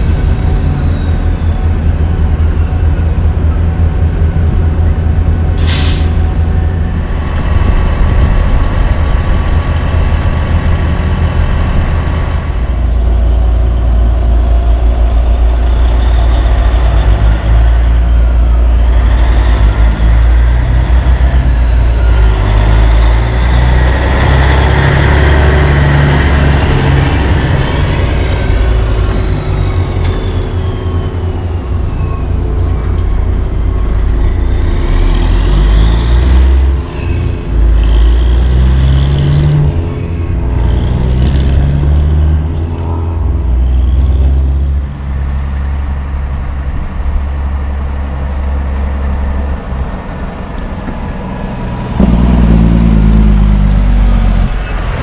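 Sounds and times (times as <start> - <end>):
high engine whistle: 0.0 - 3.2, 21.2 - 41.7
truck diesel engine driving past: 0.0 - 55.0.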